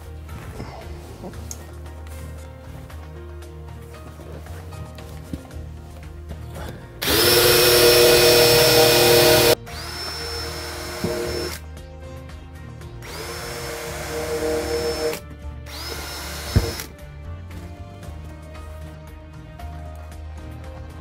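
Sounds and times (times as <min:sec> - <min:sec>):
cordless drill whining: 0:07.0 - 0:11.6, 0:13.0 - 0:16.9.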